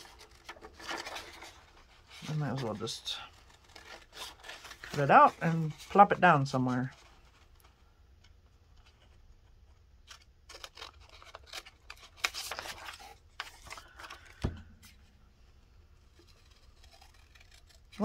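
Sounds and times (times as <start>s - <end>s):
paper rustling: 0.0s - 15.1s, 16.0s - 18.0s
scissors snipping paper: 16.2s - 18.0s.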